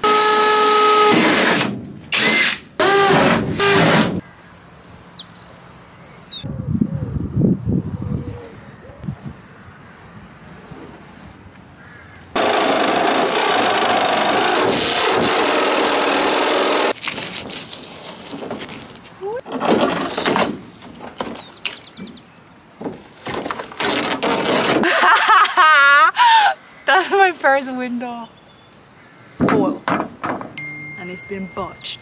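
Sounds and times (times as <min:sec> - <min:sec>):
power tool cutting sheet metal: 0:00.0 - 0:04.2, 0:12.4 - 0:17.0.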